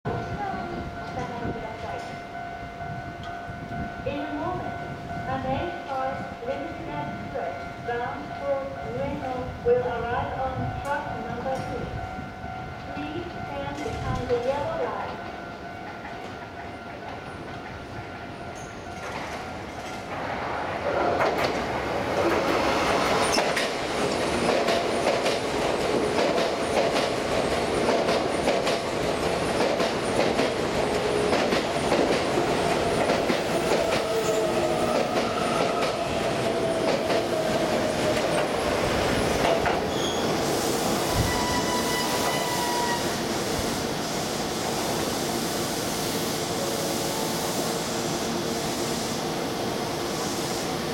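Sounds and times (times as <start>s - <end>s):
train wheels clattering over rail joints: 20.9s - 38.6s
train whine falling in pitch: 33.1s - 43.2s.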